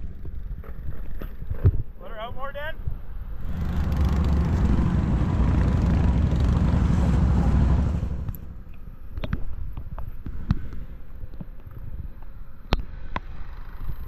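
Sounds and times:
off-road vehicle engine under load: 3.4s - 8.9s.

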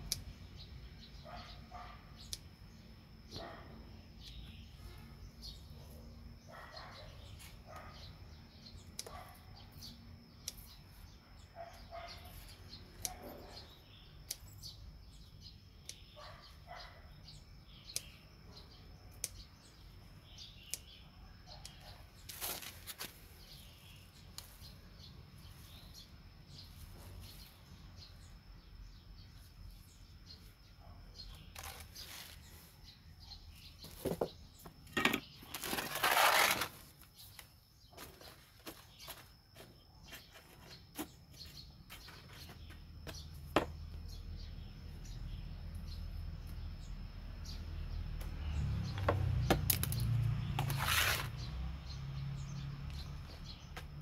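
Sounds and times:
birds chirping faintly: 0.0s - 54.0s
scissors snipping onion stalks: 8.7s - 9.3s, 12.2s - 13.6s, 14.2s - 14.7s, 17.9s - 18.2s, 19.1s - 19.5s, 20.5s - 23.2s, 24.2s - 24.7s.

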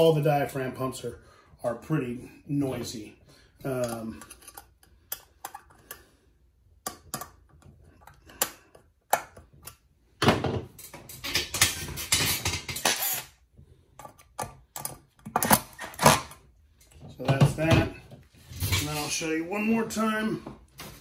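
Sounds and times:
screwdriver clicking and scraping: 3.8s - 6.1s, 6.8s - 9.9s, 10.8s - 13.4s, 14.0s - 17.0s.

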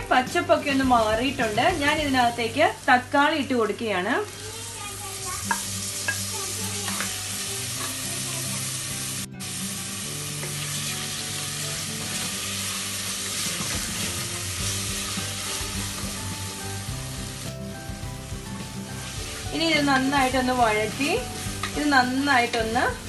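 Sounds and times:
food sizzling in hot oil: 0.0s - 23.0s.

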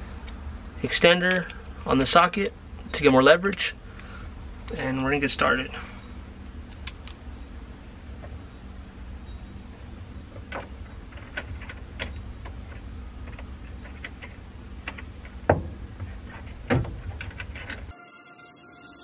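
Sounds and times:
low steady hum: 0.0s - 19.0s
louder knocks: 15.5s - 15.9s.

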